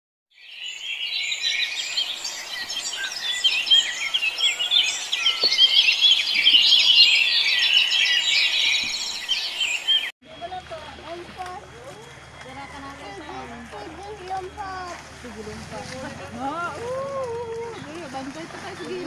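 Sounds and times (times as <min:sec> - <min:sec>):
small birds chirping: 0:00.4 - 0:15.0.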